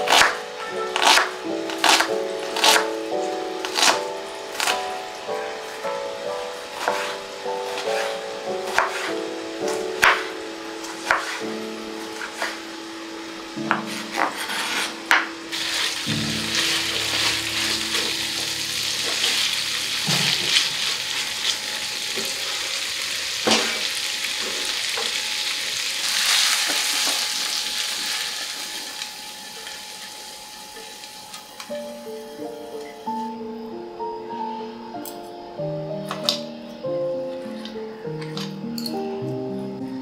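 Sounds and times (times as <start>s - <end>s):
faint background music: 0.0s - 22.2s, 29.1s - 40.0s
chicken sizzling in frying pan: 6.6s - 32.2s
knife on wooden cutting board: 8.7s - 9.1s, 13.7s - 15.8s.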